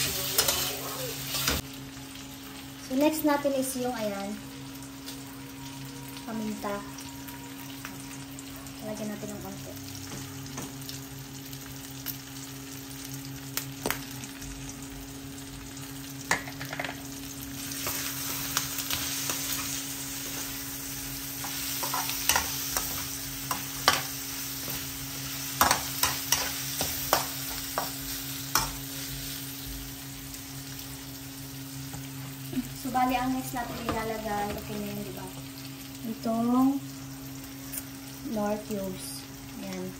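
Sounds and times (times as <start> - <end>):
meat sizzling in oil: 0.0 - 39.9.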